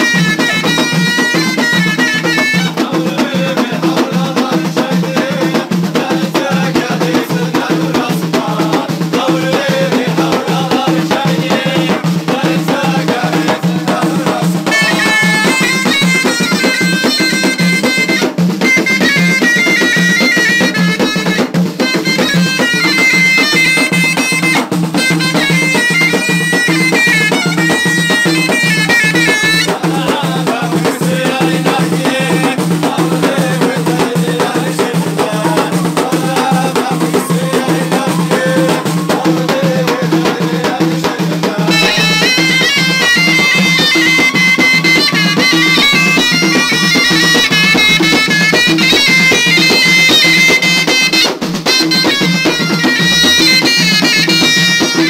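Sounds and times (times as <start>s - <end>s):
shawm playing reedy melody: 0.0s - 3.3s, 13.7s - 30.6s, 41.5s - 55.0s
men singing together: 0.0s - 18.0s, 26.7s - 51.0s
fast frame drum beating: 0.0s - 55.0s.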